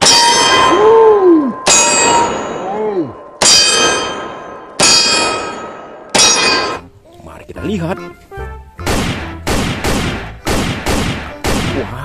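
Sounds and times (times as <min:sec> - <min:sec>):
bullet clanging on steel plate: 0:00.0 - 0:00.7, 0:03.4 - 0:06.8.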